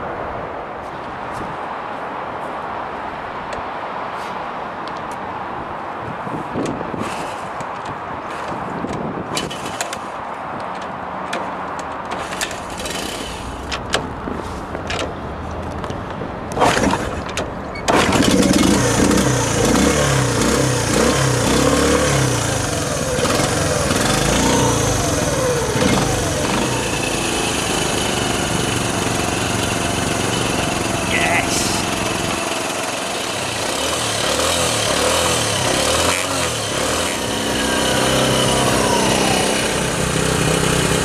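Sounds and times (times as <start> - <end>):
kick-start clicks and knocks: 8.5 - 14.1, 16.5 - 19.2
motorcycle engine running: 17.9 - 41.0.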